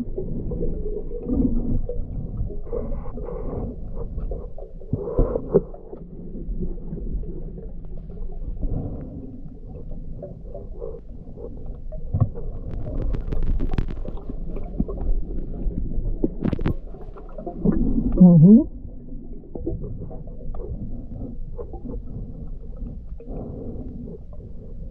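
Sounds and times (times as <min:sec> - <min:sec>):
muffled underwater rumble: 0:00.0 - 0:24.9
underwater clicks and knocks: 0:11.9 - 0:18.6.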